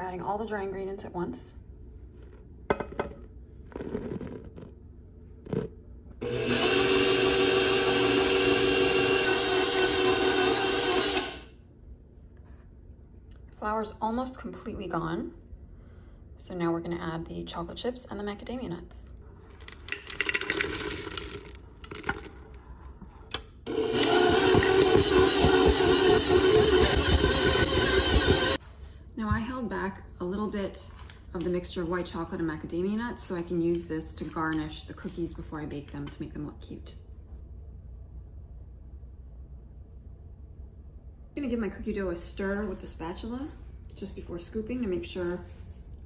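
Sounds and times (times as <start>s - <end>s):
stand mixer running: 6.2s - 11.5s, 23.7s - 28.6s
nuts pattering into metal bowl: 19.7s - 22.6s.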